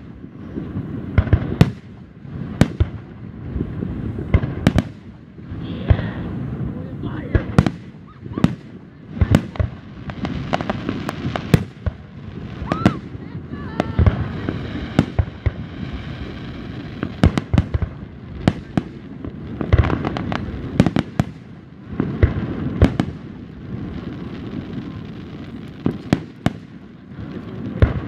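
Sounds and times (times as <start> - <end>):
fireworks bangs: 0.0 - 28.0.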